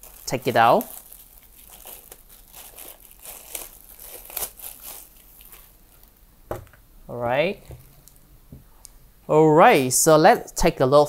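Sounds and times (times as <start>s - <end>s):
plastic wrapping crinkling: 0.0s - 6.2s.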